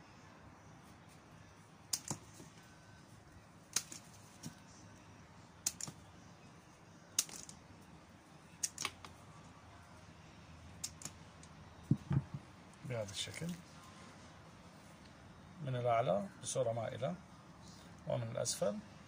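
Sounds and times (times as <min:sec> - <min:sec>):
pruning shears snipping stems: 0:01.9 - 0:02.4, 0:03.7 - 0:04.6, 0:08.6 - 0:09.1.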